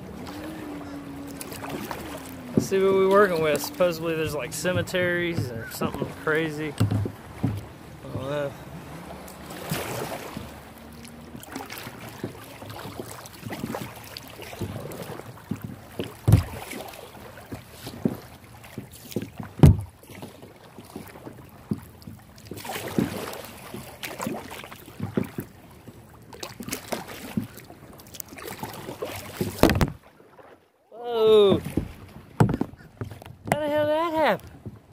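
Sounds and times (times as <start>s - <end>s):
low thumps: 0.0s - 12.4s
paddle splashing in water: 0.0s - 34.9s.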